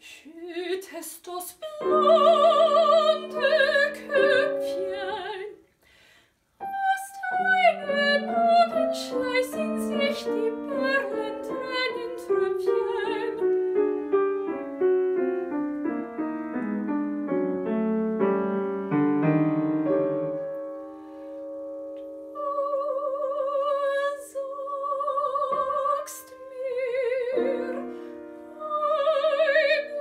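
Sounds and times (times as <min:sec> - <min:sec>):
solo piano: 0:01.8 - 0:05.6, 0:06.6 - 0:24.2, 0:24.8 - 0:30.0.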